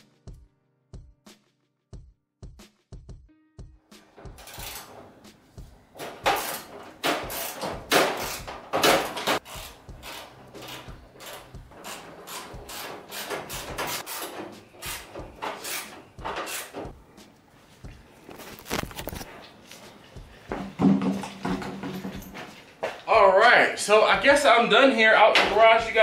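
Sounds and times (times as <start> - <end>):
hand tools clicking on bolts: 4.3 - 5.0, 6.0 - 17.0.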